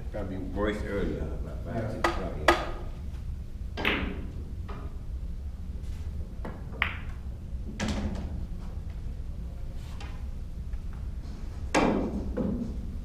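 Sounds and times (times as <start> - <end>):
low room hum: 0.0 - 13.0
cue ball clacking: 2.0 - 2.8, 3.7 - 4.9, 6.4 - 8.3
pool balls clicking: 3.7 - 5.0, 6.4 - 9.0.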